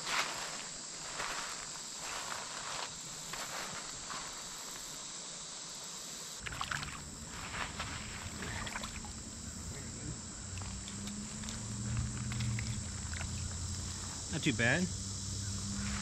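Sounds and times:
steady background hiss: 0:00.0 - 0:16.0
water splashing and sloshing: 0:06.4 - 0:09.7, 0:10.5 - 0:14.2.

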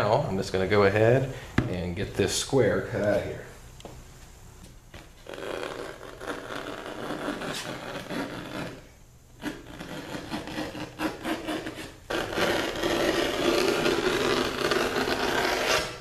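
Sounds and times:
vinyl sheet being cut: 0:05.2 - 0:08.8, 0:09.4 - 0:16.0.

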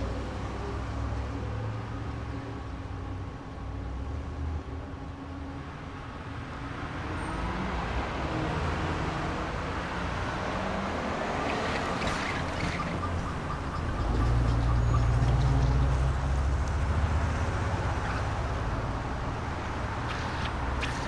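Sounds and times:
low traffic rumble: 0:00.0 - 0:21.0
car approaching: 0:06.9 - 0:21.0.

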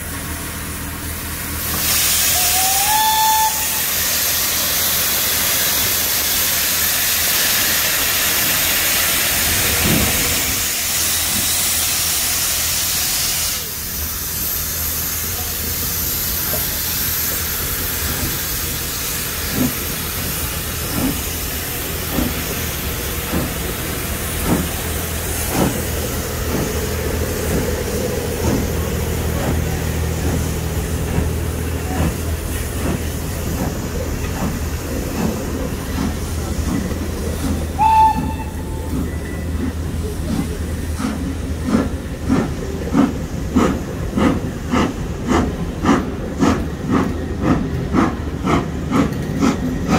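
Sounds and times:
steam locomotive exhaust beats: 0:00.0 - 0:49.9
steam hissing: 0:00.3 - 0:49.9
train wheels clacking: 0:15.4 - 0:49.9.

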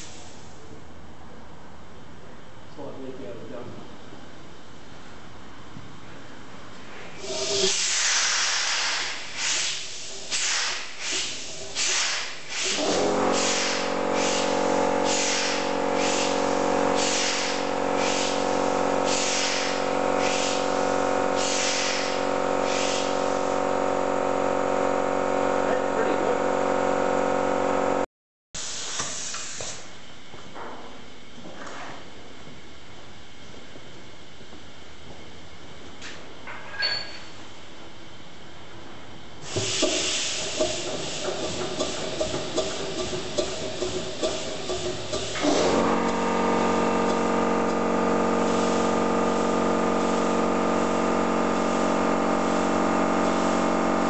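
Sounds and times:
loud hiss of air: 0:07.2 - 0:23.6, 0:28.6 - 0:29.9, 0:39.4 - 0:41.9
steam engine exhaust puffs: 0:07.2 - 0:23.6, 0:39.4 - 0:47.8
steady hum: 0:09.0 - 0:28.1, 0:40.4 - 0:54.0.

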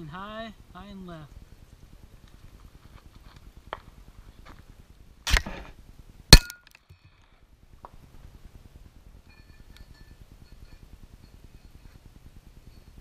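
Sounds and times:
metallic clank with ring: 0:09.2 - 0:11.8.

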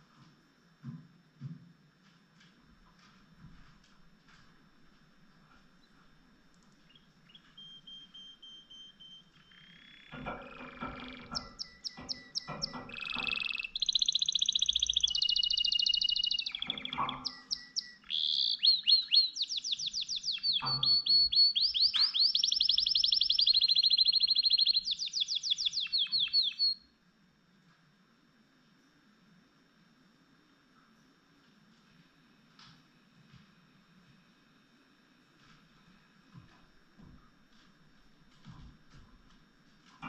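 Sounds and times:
canary singing trills: 0:06.7 - 0:26.9.

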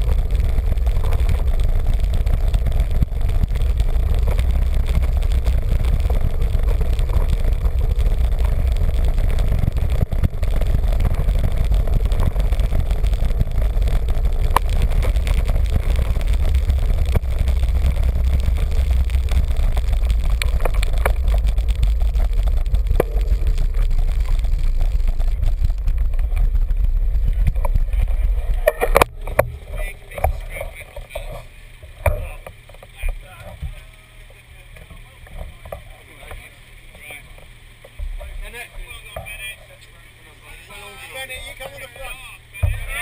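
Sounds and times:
bike knocks and rattles on cobbles: 0:00.0 - 0:33.8, 0:42.6 - 0:43.0
wind rushing over microphone: 0:00.0 - 0:33.8.

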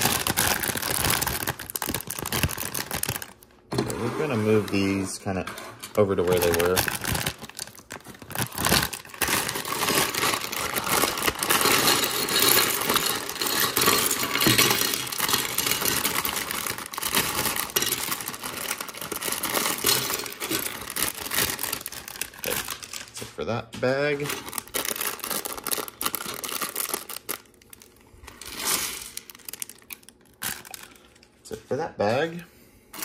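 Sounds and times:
plastic bag crinkling: 0:00.0 - 0:05.3, 0:05.9 - 0:31.6
plastic pieces clattering: 0:00.0 - 0:23.2, 0:24.2 - 0:31.3.

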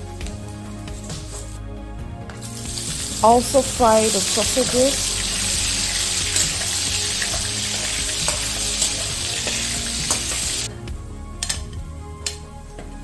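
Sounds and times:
spatula scraping wok: 0:00.8 - 0:01.6, 0:02.4 - 0:10.7
sausage sizzling in oil: 0:02.4 - 0:10.7.

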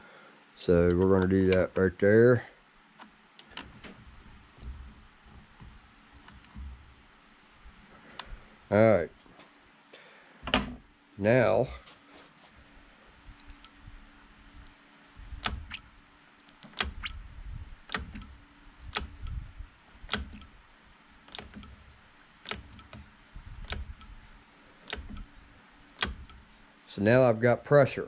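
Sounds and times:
brake lever clicking and knocking: 0:15.4 - 0:15.9, 0:16.6 - 0:17.2, 0:17.9 - 0:19.4, 0:20.0 - 0:20.6, 0:21.3 - 0:26.5.

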